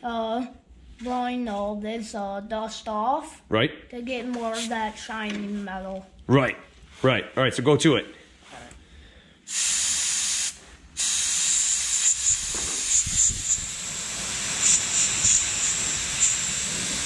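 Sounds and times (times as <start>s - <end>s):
air blow gun hissing: 9.5s - 17.0s.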